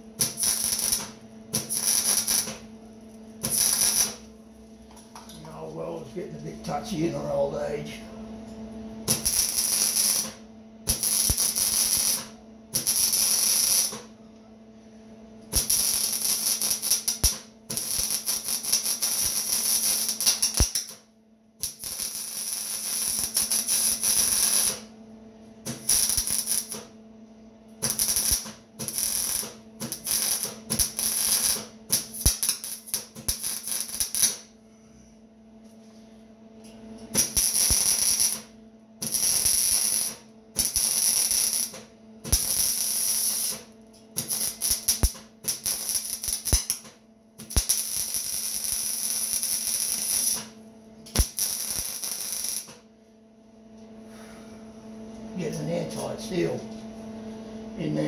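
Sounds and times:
welding arc crackling: 0.0 - 2.7, 3.3 - 4.3, 9.0 - 14.1, 15.5 - 25.0, 25.6 - 27.0, 27.8 - 34.5, 37.1 - 52.8.

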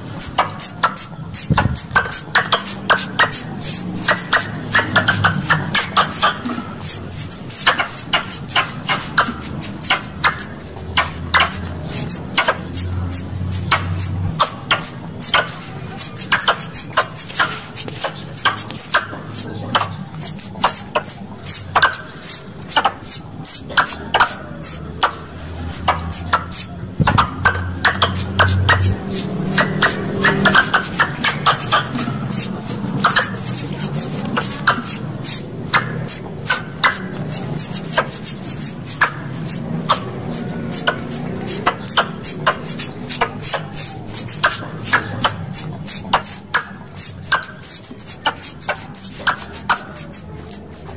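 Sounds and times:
squirrel chipping calls: 0.0 - 50.9.

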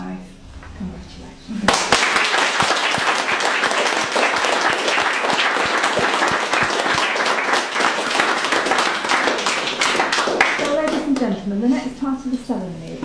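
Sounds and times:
guests applauding: 1.7 - 11.4.

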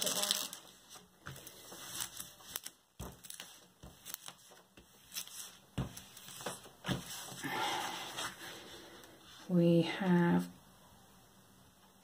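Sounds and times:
hands rustling plastic film: 0.0 - 8.7.

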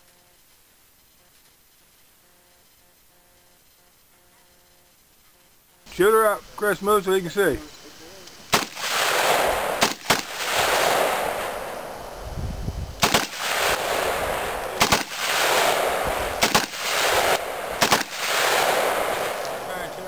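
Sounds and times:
loud shotgun shots: 8.5 - 11.8, 13.0 - 19.9.

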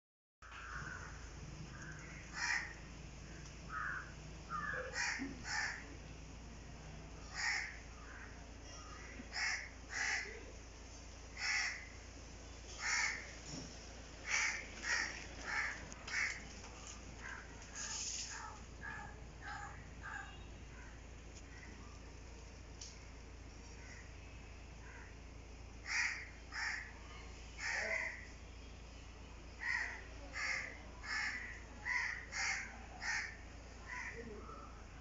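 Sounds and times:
crows cawing: 0.4 - 6.0, 7.2 - 10.5, 11.4 - 12.0, 12.7 - 13.4, 14.2 - 21.9, 23.7 - 24.1, 24.8 - 25.2, 25.8 - 28.3, 29.6 - 34.3.

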